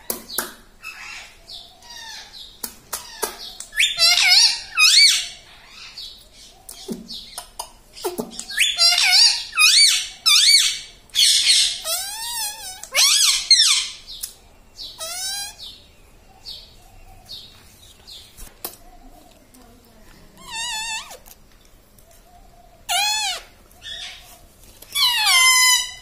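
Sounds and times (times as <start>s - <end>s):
parakeet clicks and chatter: 2.6s - 5.3s, 6.6s - 14.4s, 17.9s - 22.3s, 24.8s - 26.0s
parakeets squawking: 3.0s - 6.1s, 8.0s - 14.2s, 14.8s - 15.8s, 20.4s - 21.3s, 22.8s - 24.3s, 25.0s - 26.0s.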